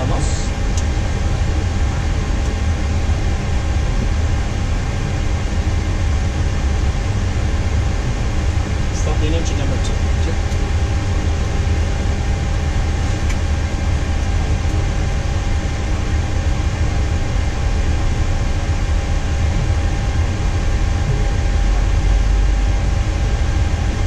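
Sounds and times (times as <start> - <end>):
cockpit low rumble and hum: 0.0 - 24.0.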